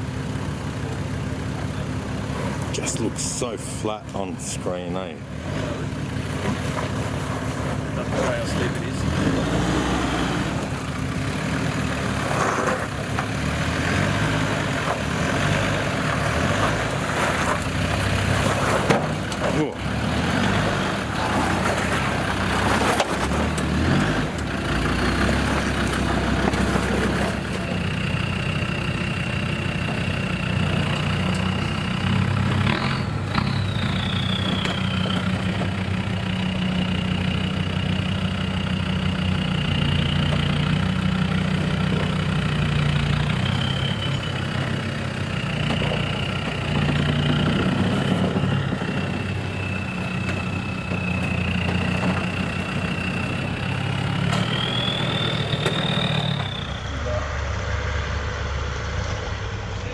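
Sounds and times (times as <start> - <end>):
diesel engine running off-road: 0.0 - 59.9
thin high whine: 54.4 - 59.9.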